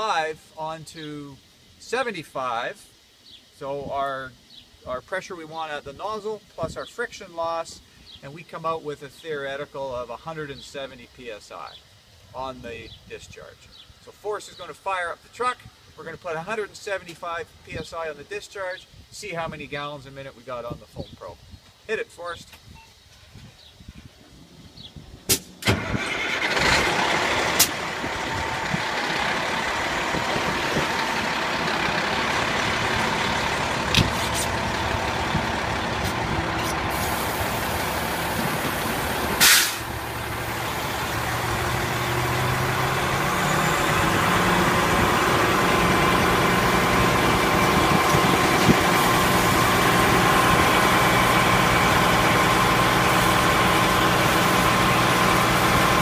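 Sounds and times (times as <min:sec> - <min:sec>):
loud burst of noise: 0:25.3 - 0:56.0
diesel engine running: 0:25.8 - 0:56.0.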